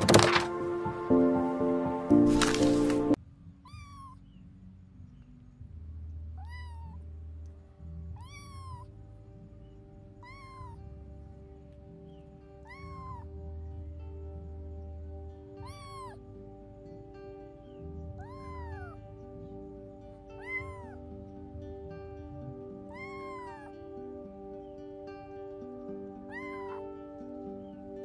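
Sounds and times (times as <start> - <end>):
kitten meowing: 3.6 - 4.4, 6.4 - 7.0, 8.1 - 8.9, 10.2 - 10.8, 12.6 - 13.3, 15.6 - 16.2, 18.1 - 19.1, 20.3 - 21.0, 22.8 - 23.8, 26.2 - 27.0.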